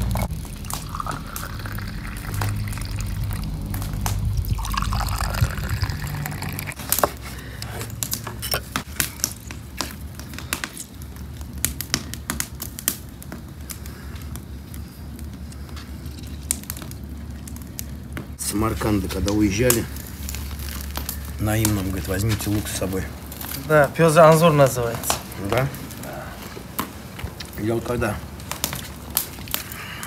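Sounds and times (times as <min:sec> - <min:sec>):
drink pouring into glasses: 0:00.0 - 0:06.8.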